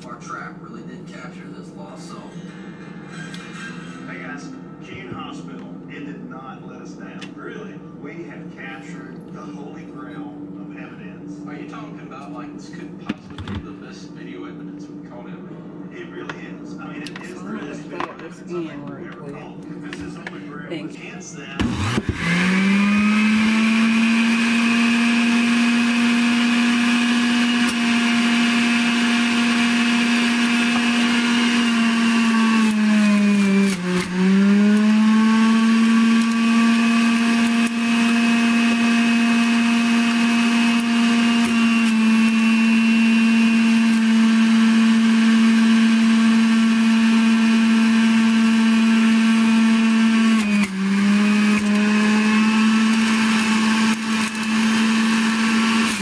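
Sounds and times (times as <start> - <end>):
juicer motor whining: 21.4 - 56.0.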